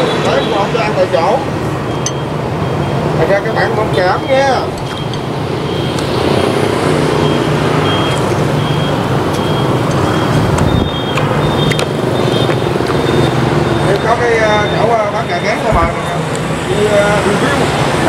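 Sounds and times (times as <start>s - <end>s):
large vehicle engine rumbling: 0.0s - 18.0s
short high beeps: 1.9s - 6.6s, 7.2s - 15.7s.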